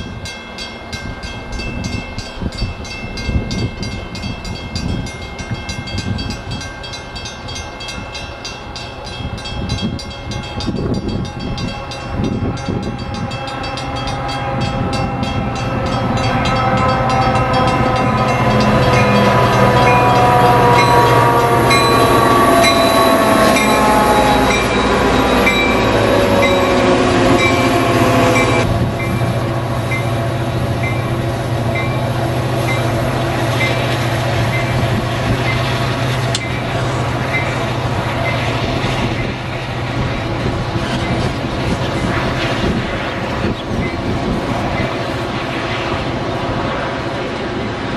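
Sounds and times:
bell ringing: 0:00.0 - 0:30.2
diesel locomotive passing: 0:00.0 - 0:47.9.

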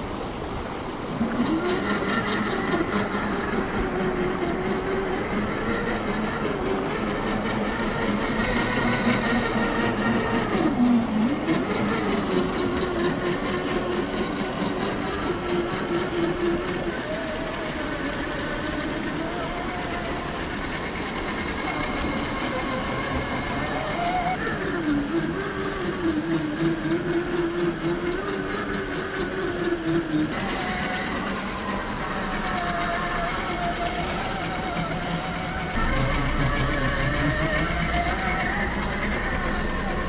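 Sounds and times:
electric motor whining: 0:00.0 - 0:40.0.

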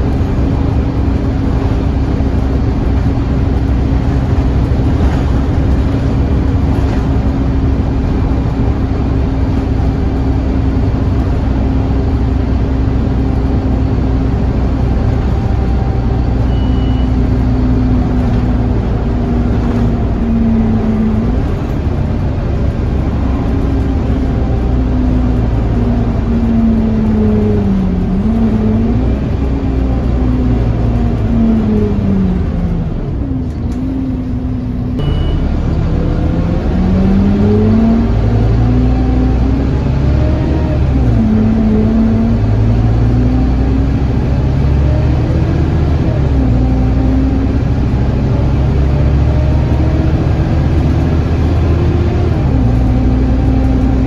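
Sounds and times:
bus engine droning: 0:00.0 - 0:54.0
road noise: 0:00.0 - 0:54.0
whining tone: 0:30.7 - 0:38.9.

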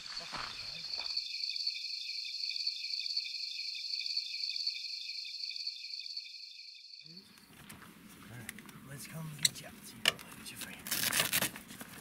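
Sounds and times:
crickets chirping: 0:00.0 - 0:07.9.

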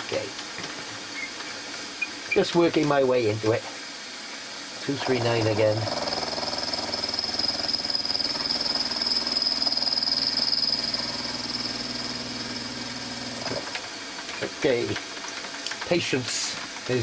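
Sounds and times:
milling machine cutting metal: 0:04.8 - 0:13.7.

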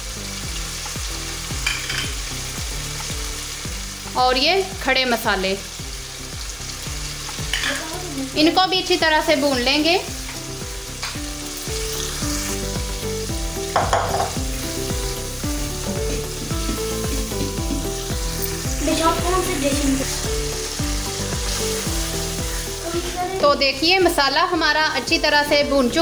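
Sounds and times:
food sizzling in hot oil: 0:00.0 - 0:26.0
wooden spoon stirring in pan: 0:13.7 - 0:23.6.

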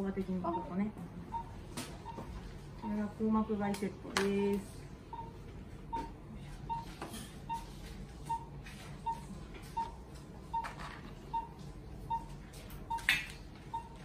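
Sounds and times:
pulse oximeter beeping: 0:00.5 - 0:03.1, 0:05.1 - 0:14.0.

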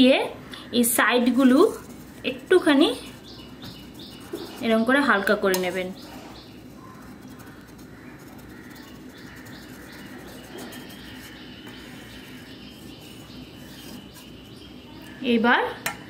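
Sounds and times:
birds chirping faintly: 0:00.0 - 0:16.0.

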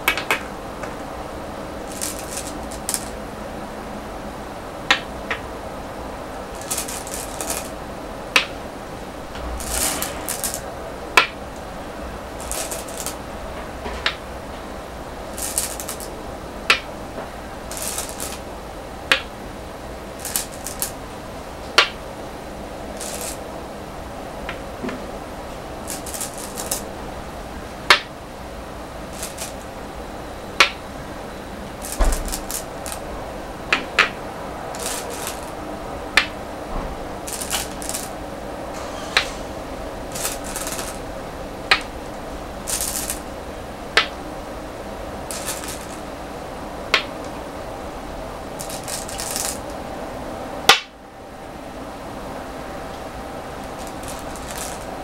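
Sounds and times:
stones clicking on wooden board: 0:01.9 - 0:03.1, 0:15.4 - 0:16.1, 0:17.7 - 0:18.4, 0:20.2 - 0:20.9, 0:23.0 - 0:23.4, 0:25.9 - 0:26.8, 0:29.2 - 0:29.6, 0:31.8 - 0:33.0, 0:34.8 - 0:35.5, 0:37.3 - 0:38.1, 0:40.2 - 0:41.0, 0:42.7 - 0:43.2, 0:45.3 - 0:46.0, 0:48.6 - 0:49.6, 0:53.7 - 0:54.9
stones rattling in bowl: 0:01.9 - 0:03.1, 0:06.6 - 0:07.7, 0:09.6 - 0:10.6, 0:12.4 - 0:13.2, 0:15.3 - 0:16.1, 0:17.7 - 0:18.4, 0:20.2 - 0:21.0, 0:23.0 - 0:23.4, 0:25.8 - 0:26.8, 0:29.1 - 0:29.6, 0:31.8 - 0:33.0, 0:34.7 - 0:35.6, 0:37.3 - 0:38.1, 0:40.1 - 0:41.0, 0:42.7 - 0:43.2, 0:45.3 - 0:46.0, 0:48.6 - 0:49.6, 0:53.6 - 0:54.9.

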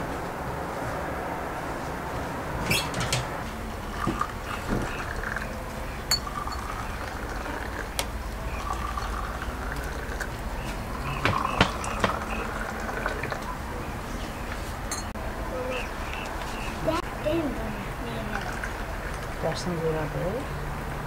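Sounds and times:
water pouring into glasses: 0:03.9 - 0:13.6.

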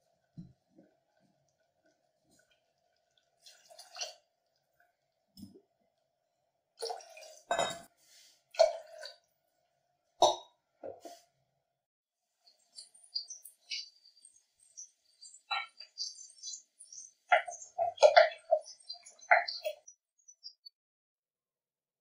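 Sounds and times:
water pouring and splashing: 0:01.2 - 0:05.6, 0:06.8 - 0:07.5, 0:08.5 - 0:09.2.

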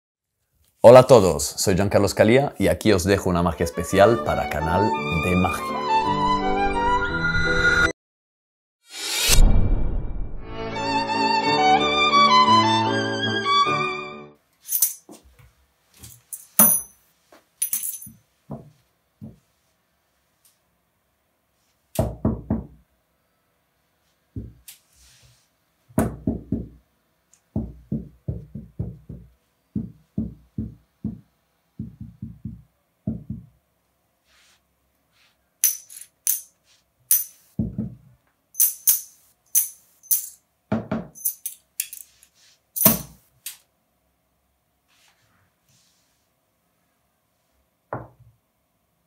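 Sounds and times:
coins clinking in hand: 0:14.6 - 0:15.2, 0:16.0 - 0:17.0, 0:17.6 - 0:18.2, 0:35.6 - 0:37.5, 0:38.6 - 0:40.4, 0:41.2 - 0:43.2
coins knocking on a table: 0:16.0 - 0:17.0, 0:17.6 - 0:19.4, 0:35.6 - 0:36.5, 0:37.1 - 0:37.9, 0:38.6 - 0:42.1, 0:42.8 - 0:43.2
knuckles knocking on a table: 0:18.5 - 0:19.4, 0:24.4 - 0:24.6, 0:26.0 - 0:26.8, 0:27.6 - 0:33.6, 0:37.6 - 0:38.0, 0:47.9 - 0:48.2.

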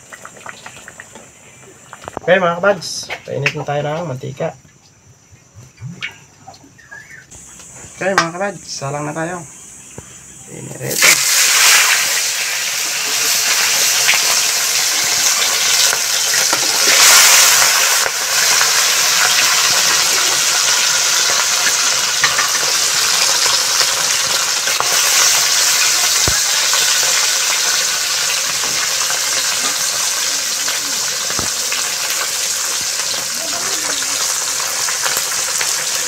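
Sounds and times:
fish sizzling in hot oil: 0:00.0 - 0:02.2, 0:10.8 - 0:36.0.

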